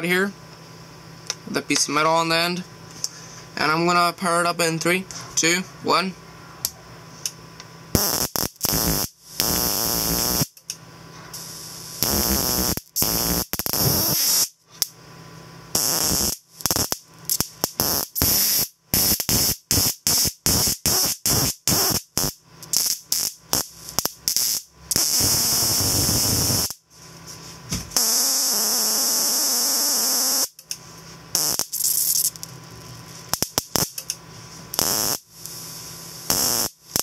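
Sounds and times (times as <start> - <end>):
high-voltage electric arcs: 8.0 - 10.6, 11.3 - 14.6, 15.7 - 26.8, 28.0 - 30.7, 31.3 - 32.5, 33.2 - 37.0.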